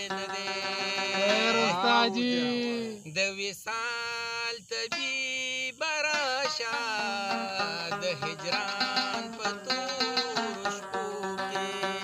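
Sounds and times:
rubab playing: 0.0s - 3.0s, 4.9s - 12.0s
man singing folk song: 0.0s - 12.0s.

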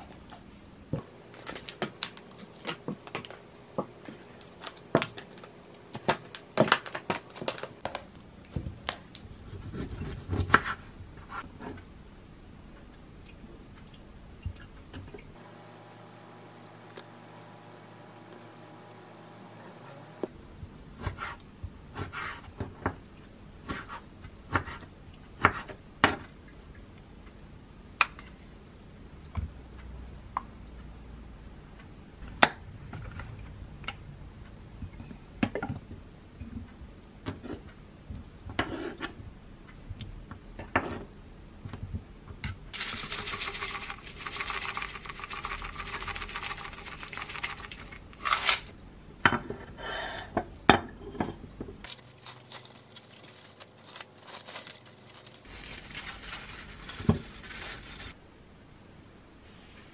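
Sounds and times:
granola pouring rustle: 42.8s - 48.7s, 51.8s - 58.2s.

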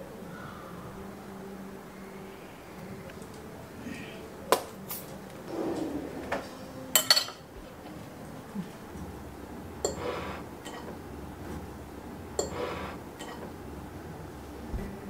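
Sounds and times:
ceramic plate clinking on table: 7.0s - 7.5s.

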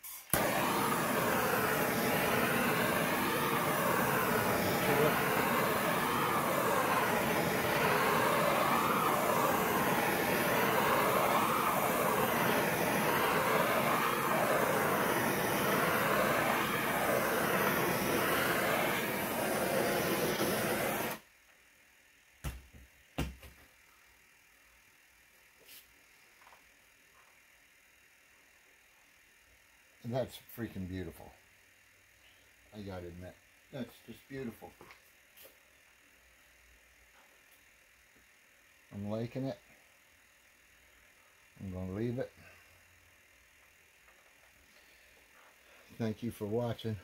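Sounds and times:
gas torch hissing: 0.0s - 21.3s, 40.8s - 43.7s.

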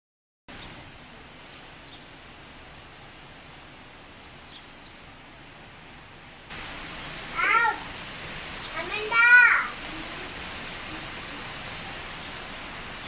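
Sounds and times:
small birds chirping: 0.5s - 3.0s, 4.2s - 5.7s, 6.6s - 13.0s
steady outdoor hiss: 0.5s - 13.0s.

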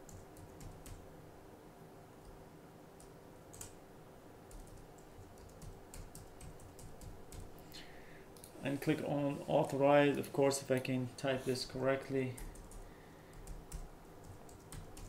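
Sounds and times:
keyboard typing: 0.0s - 1.0s, 3.0s - 3.8s, 4.5s - 7.6s, 12.3s - 15.0s.

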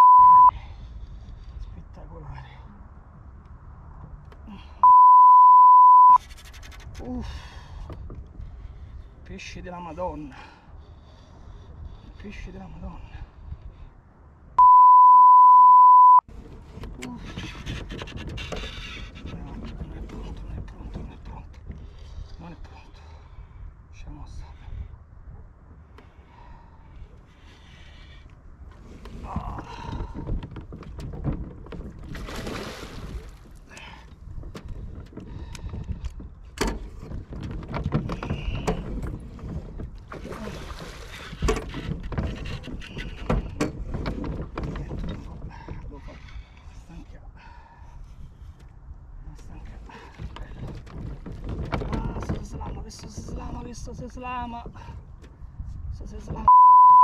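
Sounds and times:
censor bleep: 0.0s - 0.5s, 4.8s - 6.2s, 14.6s - 16.3s, 56.5s - 57.0s
wind rumble on microphone: 6.2s - 14.6s, 16.3s - 47.2s, 47.9s - 56.5s.

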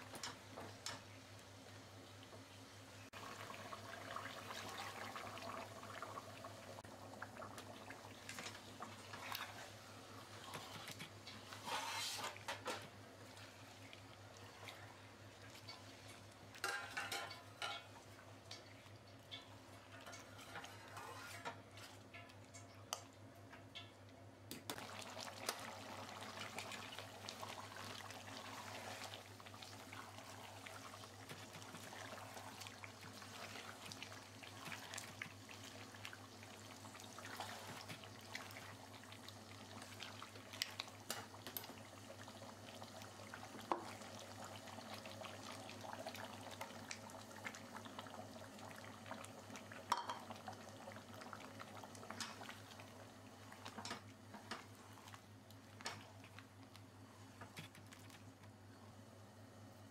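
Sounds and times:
curry sizzling and bubbling: 0.0s - 59.9s
spoon scraping a pot: 10.5s - 12.6s, 19.4s - 22.0s.

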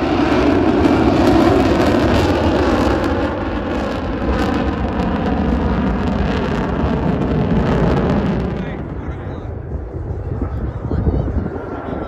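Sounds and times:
jet roar overhead: 0.0s - 12.0s.

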